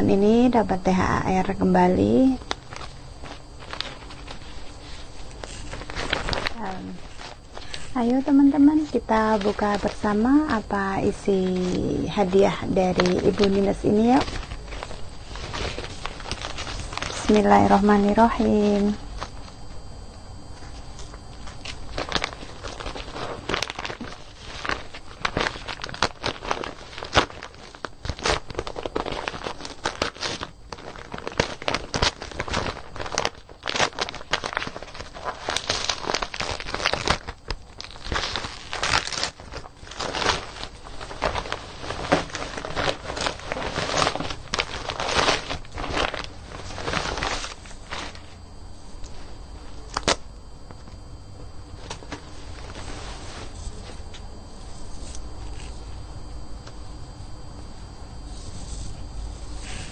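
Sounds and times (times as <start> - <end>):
gift wrapping rustling: 0.9 - 19.6, 20.6 - 48.4.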